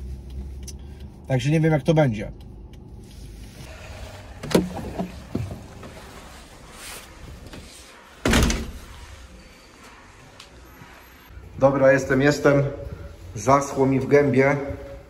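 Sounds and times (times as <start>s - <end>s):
door shutting thud: 8.2s - 8.9s.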